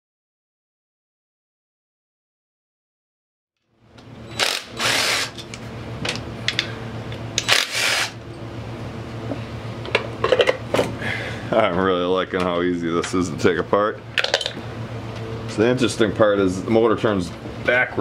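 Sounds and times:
steady low hum: 3.6s - 18.0s
power driver spinning bolts: 4.0s - 5.6s, 7.4s - 8.2s.

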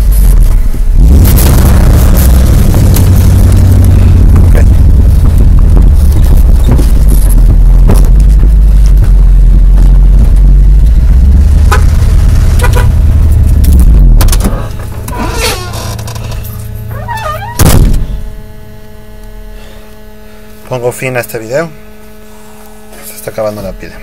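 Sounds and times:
truck rumbling on rough road: 0.0s - 18.9s
loud thump: 1.0s - 15.1s, 17.5s - 18.4s
faint squeaks: 15.1s - 17.6s.

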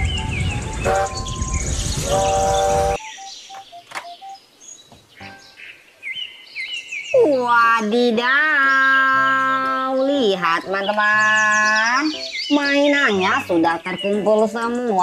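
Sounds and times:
steam train rumble: 0.0s - 3.0s
birds chirping: 0.0s - 15.0s
steam whistle blasts: 0.3s - 3.0s.

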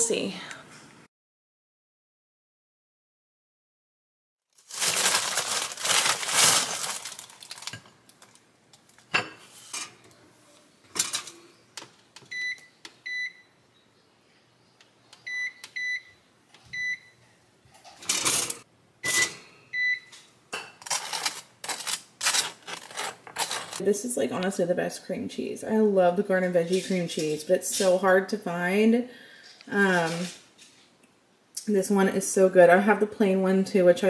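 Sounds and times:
paper bag rustling: 4.5s - 9.1s, 20.8s - 23.8s
toaster button beeps: 19.0s - 20.1s.

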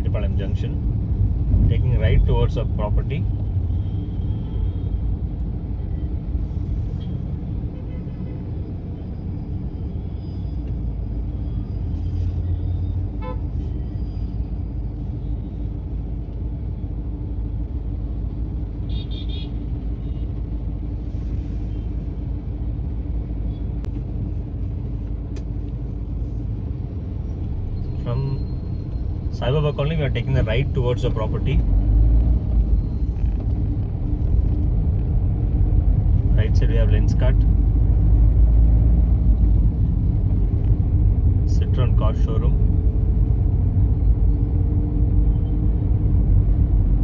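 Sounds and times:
low car cabin rumble: 19.7s - 47.0s.

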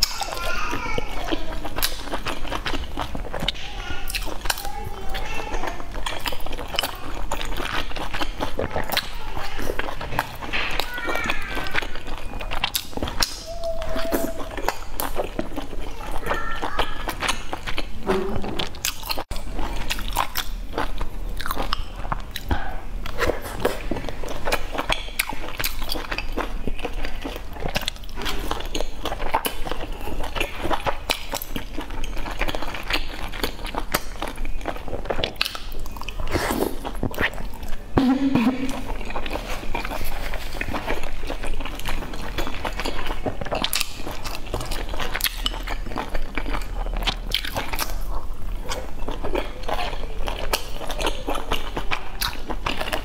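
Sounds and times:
person chewing: 0.0s - 53.0s.

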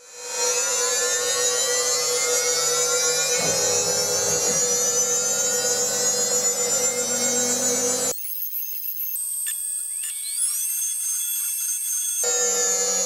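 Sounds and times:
milling machine spindle whine: 0.3s - 9.0s
low hum: 3.3s - 8.1s.

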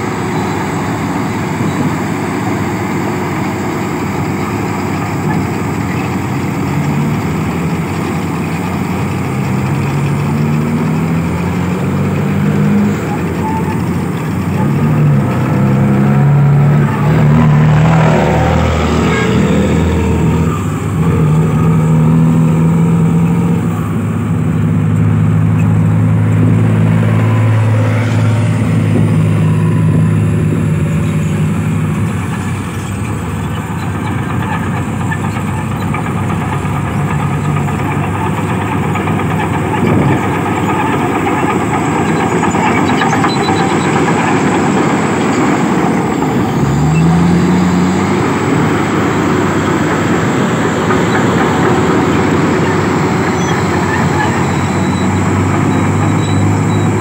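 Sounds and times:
bulldozer working noise: 0.0s - 57.0s
dump truck engine passing: 0.0s - 57.0s
engine revving: 0.0s - 57.0s.

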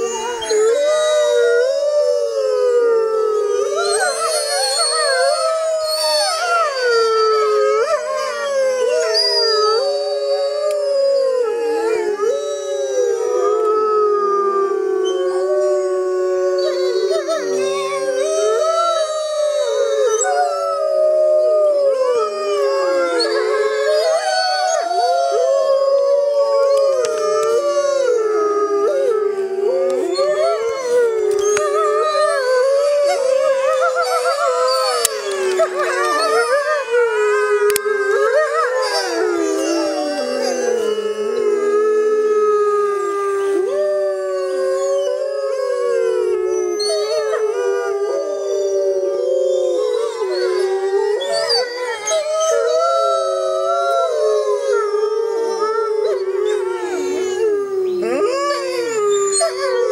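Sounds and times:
wolves howling in chorus: 0.0s - 59.9s.

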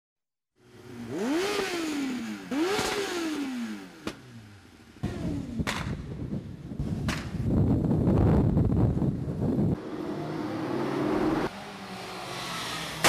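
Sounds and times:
engine revving: 0.7s - 6.0s, 9.7s - 13.0s
sharp crack: 5.6s - 6.0s, 7.0s - 7.5s.

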